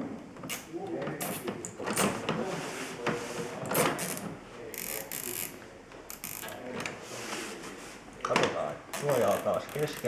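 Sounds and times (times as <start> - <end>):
zip ties ratcheting: 6.1 - 6.5.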